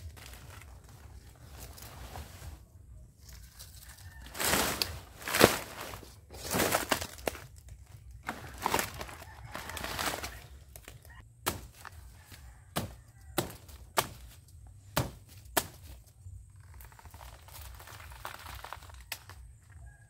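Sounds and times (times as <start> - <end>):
machete chopping: 10.8 - 12.0, 12.7 - 16.0.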